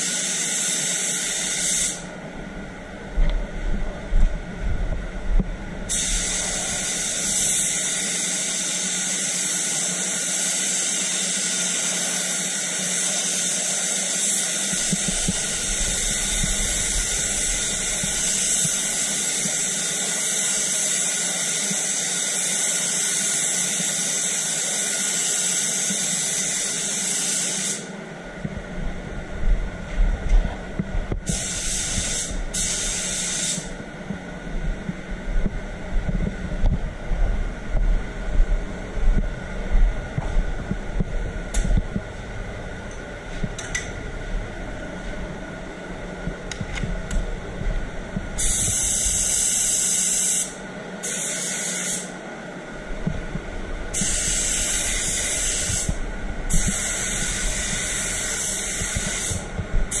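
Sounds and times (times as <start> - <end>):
extraction fan hum: 0.0 - 60.0
paint spray gun hissing: 0.6 - 2.1, 5.9 - 8.9, 31.3 - 33.7, 48.4 - 52.1, 53.9 - 60.0.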